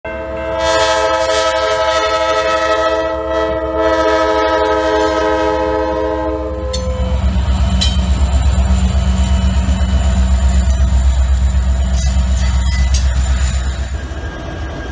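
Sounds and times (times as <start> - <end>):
locomotive air horn chord: 0.1 - 6.9
diesel locomotive engines rumbling: 0.1 - 14.9.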